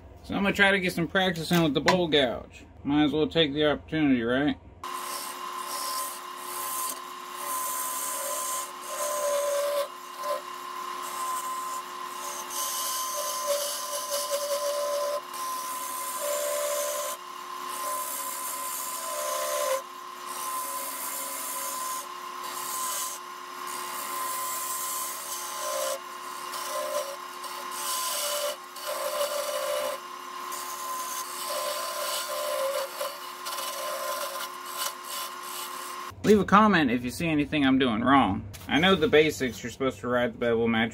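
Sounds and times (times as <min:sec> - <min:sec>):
wood lathe whine: 0:04.8 - 0:36.2
gouge scraping wood: 0:04.9 - 0:17.2, 0:17.8 - 0:36.0.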